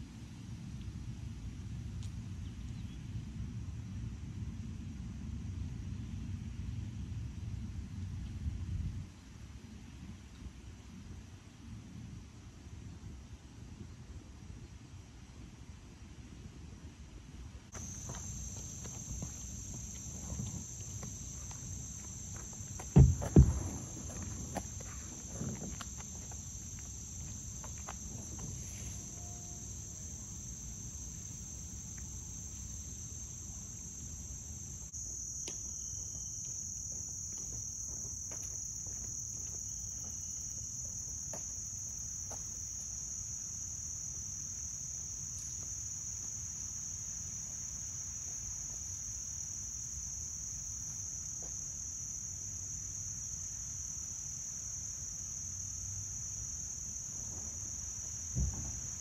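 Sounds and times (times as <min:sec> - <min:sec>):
high-pitched insect chorus: 0:17.8 - 0:59.0
light knocks: 0:22.8 - 0:24.7
loud thump: 0:22.9 - 0:24.7, 0:58.4 - 0:58.9.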